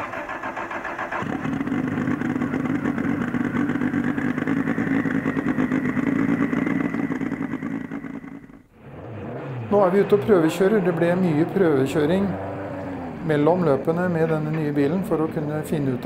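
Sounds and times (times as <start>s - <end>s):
race car engine fast idle: 0.0s - 8.7s.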